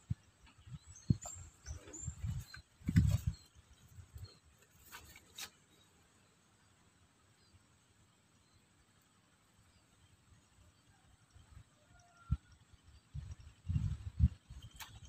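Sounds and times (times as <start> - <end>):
wind buffeting microphone: 0.0 - 4.3, 13.1 - 15.0.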